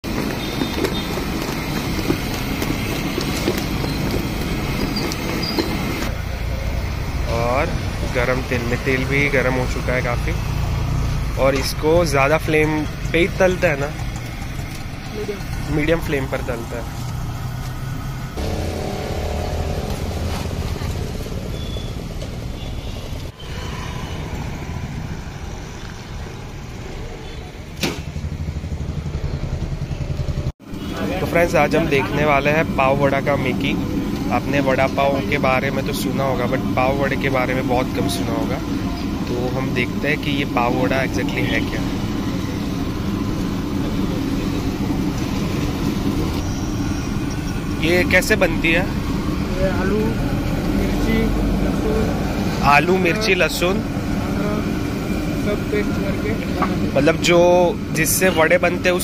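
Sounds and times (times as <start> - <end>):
motorcycle and scooter engines: 0.0 - 59.0
street traffic roar: 0.0 - 59.0.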